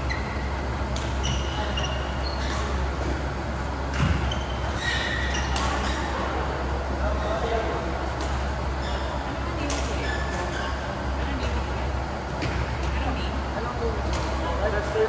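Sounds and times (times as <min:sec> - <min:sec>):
shoes squeaking on court: 0:00.0 - 0:03.2, 0:03.8 - 0:06.3, 0:08.2 - 0:11.6
steady low hum: 0:00.0 - 0:15.0.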